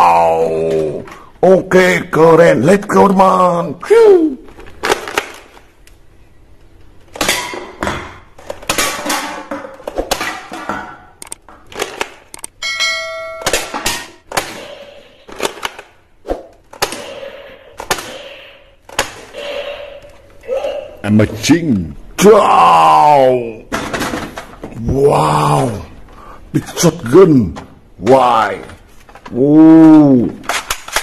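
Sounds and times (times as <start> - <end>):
darts striking cans: 7.1 - 12.3, 13.3 - 19.3
bell-like ding: 12.6 - 13.5.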